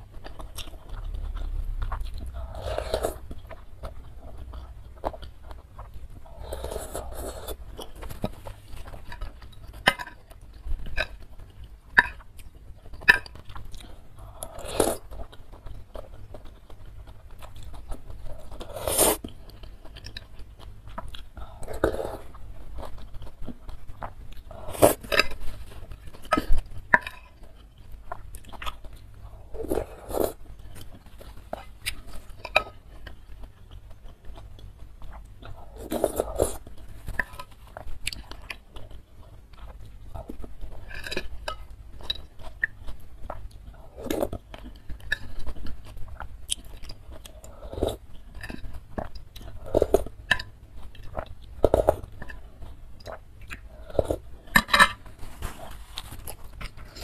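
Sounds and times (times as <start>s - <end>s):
chewing and mouth sounds: 0.0s - 57.0s
slurping broth from spoon: 2.4s - 3.2s, 18.6s - 19.2s.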